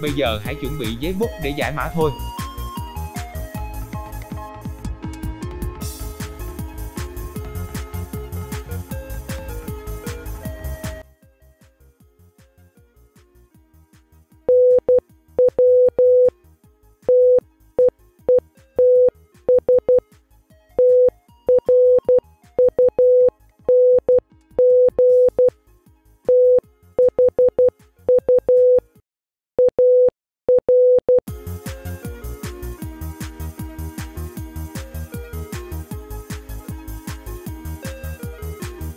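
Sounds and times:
faint electronic background music: 0.0s - 2.2s
morse code beeps: 14.5s - 16.3s, 17.1s - 20.0s, 20.8s - 25.5s, 26.3s - 28.8s, 29.6s - 31.2s.

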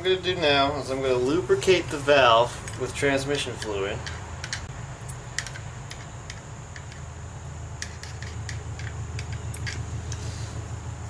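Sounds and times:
steady low hum: 0.0s - 11.0s
oil can metallic clicks: 3.6s - 7.0s, 7.8s - 10.2s.

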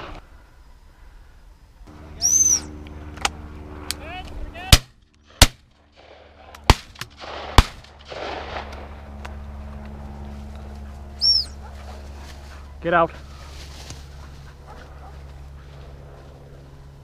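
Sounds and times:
dog whistle blast: 2.2s - 2.7s
shotgun shots: 4.7s - 8.9s.

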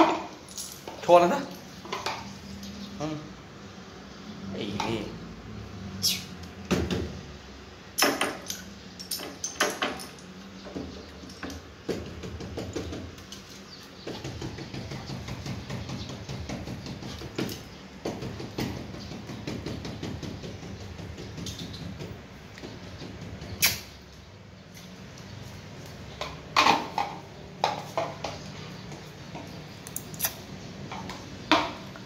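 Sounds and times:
dog knocking against door: 14.1s - 23.5s.

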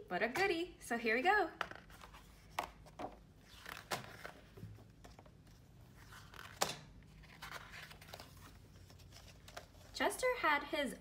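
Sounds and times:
book pages turning: 1.8s - 10.0s
faint paper rustling: 1.8s - 10.0s.

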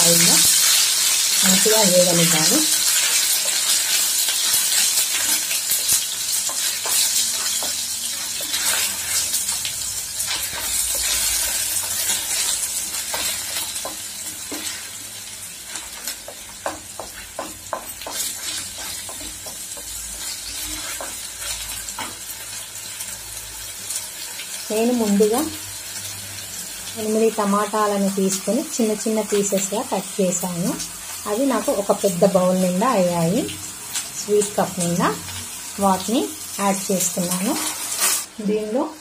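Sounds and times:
garlic sizzling in hot oil: 0.0s - 39.0s
wooden spatula scraping a pan: 3.0s - 9.6s, 10.2s - 15.0s, 15.7s - 22.3s, 37.2s - 38.3s.

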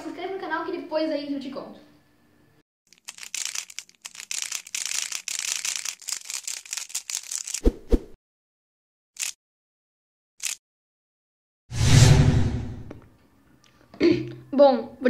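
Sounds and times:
dense clatter of clicks and crackles: 2.9s - 7.6s.

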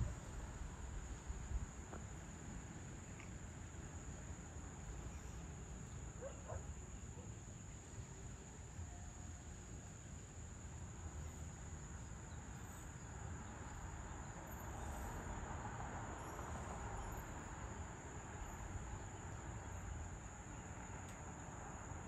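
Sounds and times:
crickets trilling: 0.0s - 22.0s.

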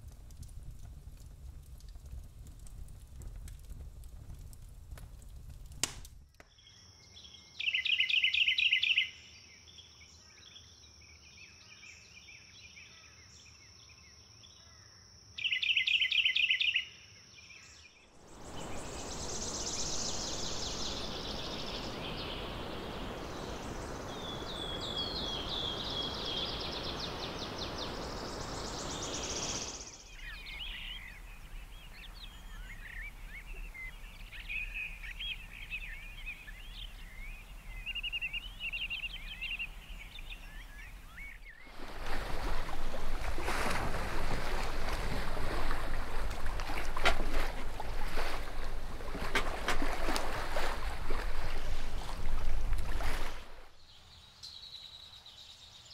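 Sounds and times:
campfire embers crackle: 0.0s - 6.5s, 39.2s - 53.7s
forest birdsong: 6.4s - 55.9s
waterfall rushing: 18.2s - 29.8s.

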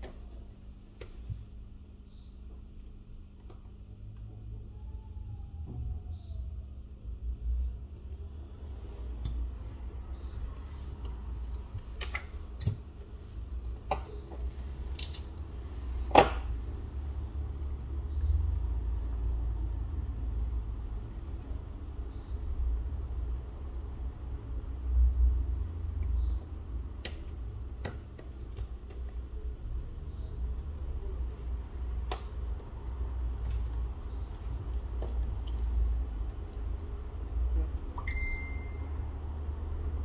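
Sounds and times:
steady low hum: 0.0s - 40.0s
small tools clicking and tapping: 11.0s - 15.5s, 34.5s - 36.7s
short high beep: 38.0s - 38.9s.

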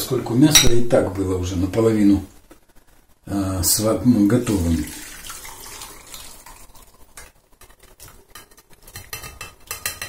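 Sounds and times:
broth pouring through strainer: 4.5s - 8.4s.

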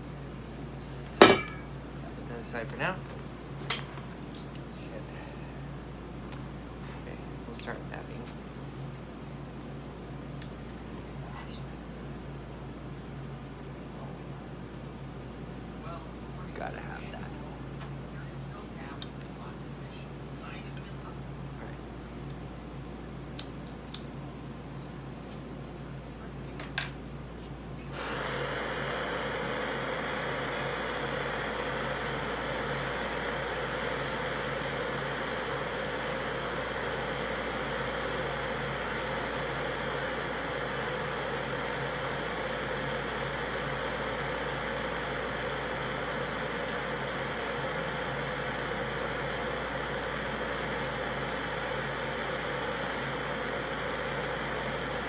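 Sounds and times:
torch flame hissing: 0.8s - 3.0s, 27.8s - 55.0s.

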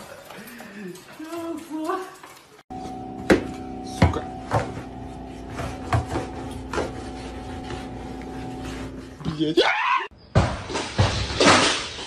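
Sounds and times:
steady hum: 2.7s - 9.2s
mop handle scraping under fridge: 4.6s - 9.2s.

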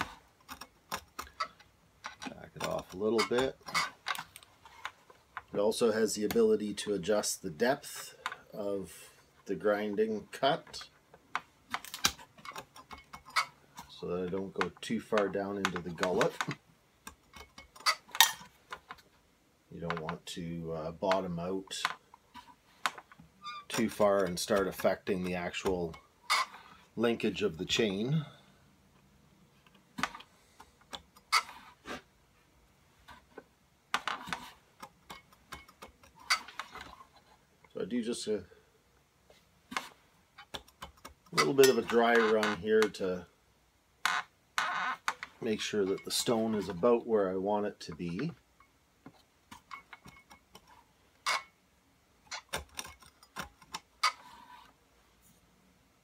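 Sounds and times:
metallic clicks and clunks: 0.0s - 5.5s, 10.6s - 19.1s, 33.1s - 37.8s, 47.8s - 51.6s, 52.2s - 54.7s.

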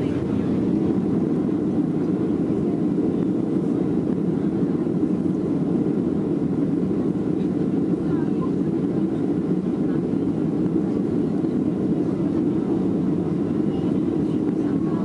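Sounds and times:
air rushing over fuselage: 0.0s - 8.0s
airplane cabin engine roar: 0.0s - 15.0s.

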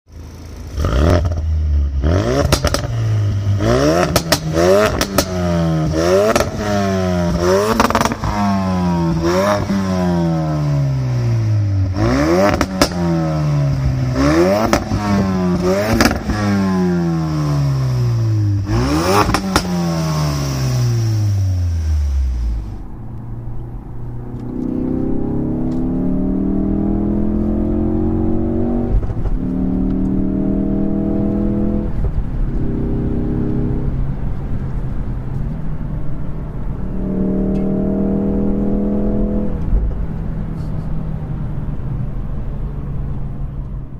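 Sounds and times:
car engine revving: 0.2s - 43.4s
engine accelerating inside car: 24.2s - 41.7s.

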